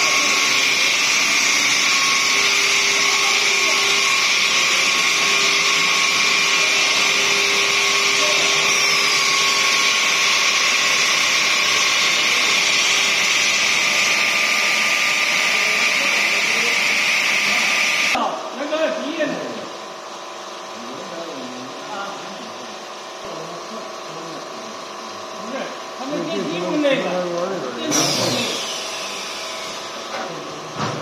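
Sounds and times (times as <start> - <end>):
stone grinding machine whine: 0.0 - 18.2, 25.4 - 30.7.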